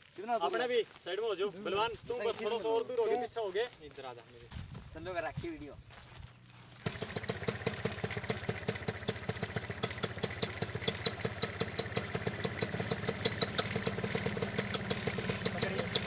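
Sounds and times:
engine idling with pops: 6.8 - 16.0.

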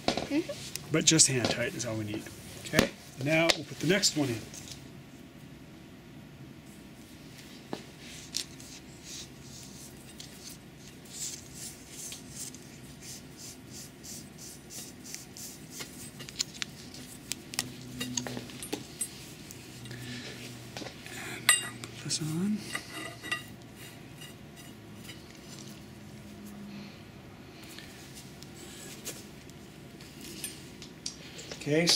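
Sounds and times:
metal pipe clinks and taps: 17.6 - 19.2, 21.5 - 21.9.

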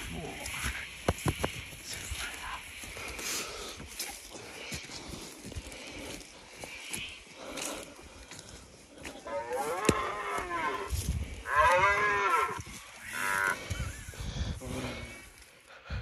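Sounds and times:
deer stag roaring: 9.2 - 13.6.

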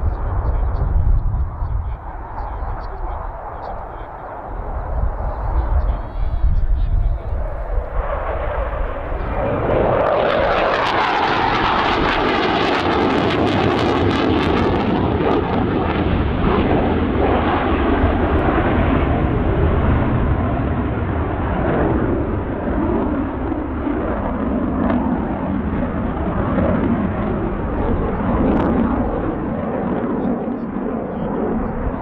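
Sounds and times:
jet flying past: 0.0 - 32.0.

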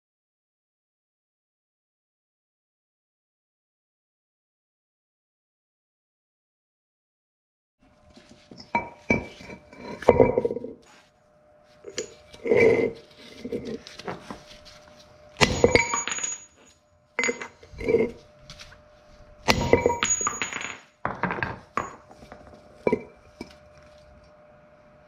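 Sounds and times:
metal-on-metal hammer strikes: 15.4 - 16.5, 19.4 - 22.0.

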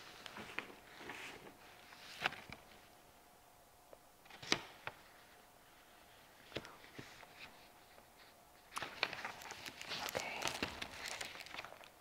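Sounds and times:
wrapper crinkling: 8.8 - 12.0.

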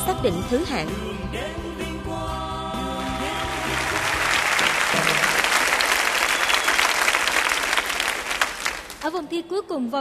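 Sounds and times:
backing music: 0.0 - 7.8
audience applauding: 3.0 - 9.2.

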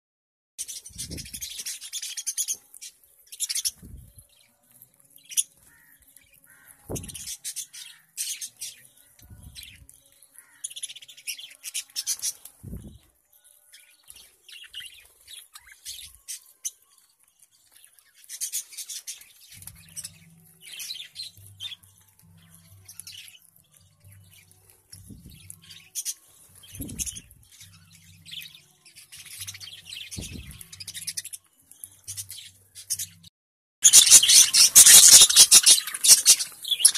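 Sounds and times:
budgerigars chirping: 33.8 - 36.9.

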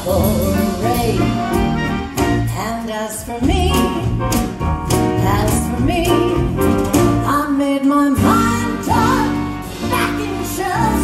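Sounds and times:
bass guitar: 0.0 - 11.0
drums: 0.0 - 11.0
woman singing into microphone: 2.5 - 4.2, 5.2 - 6.5, 7.2 - 11.0.

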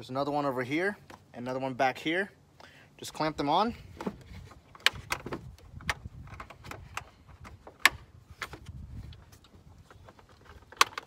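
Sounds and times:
sharp plastic clacks: 4.0 - 8.8, 9.4 - 11.0.

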